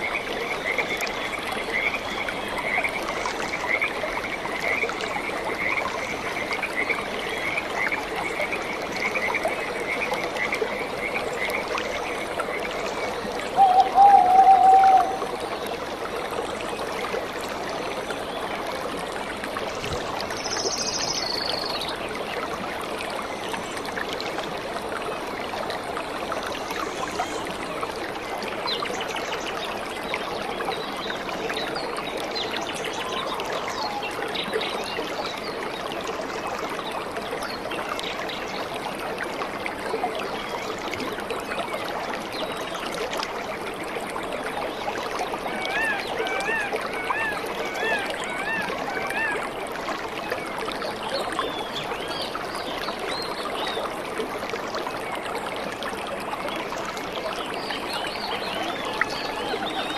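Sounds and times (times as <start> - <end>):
running water of a stream: 0.0 - 59.9.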